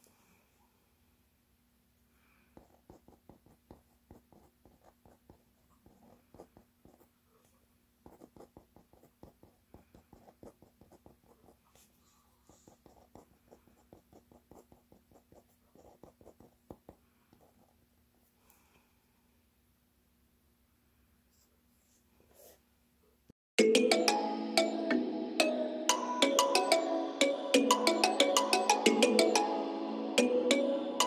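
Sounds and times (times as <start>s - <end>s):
pen scratching on paper: 2.6s - 7.1s, 8.0s - 17.8s.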